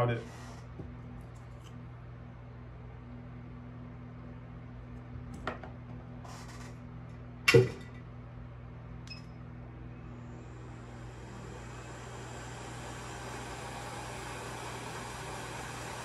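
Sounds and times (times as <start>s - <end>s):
electrical hum: 0.0s - 16.0s
hot air gun hissing: 10.8s - 16.0s.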